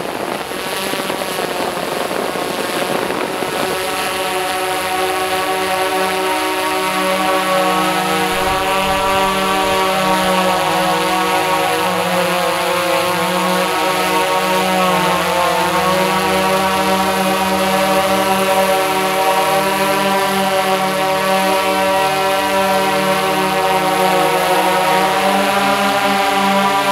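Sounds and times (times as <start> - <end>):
drone motors hovering: 5.1 - 14.0.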